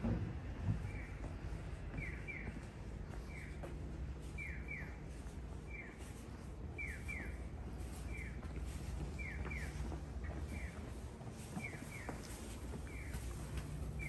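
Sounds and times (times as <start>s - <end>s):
pedestrian crossing signal chirps: 1.9s - 3.6s, 4.3s - 6.1s, 6.7s - 10.8s.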